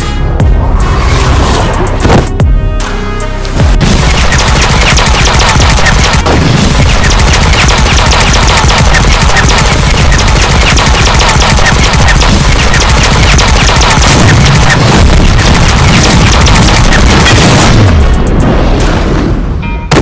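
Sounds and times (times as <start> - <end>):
rotary machine gun firing: 3.8 - 18.2.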